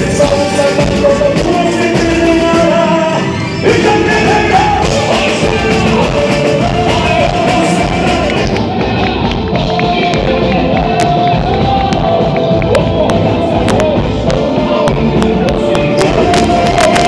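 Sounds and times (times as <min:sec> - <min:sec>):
band playing: 0:00.0 - 0:17.0
person singing: 0:00.0 - 0:17.0.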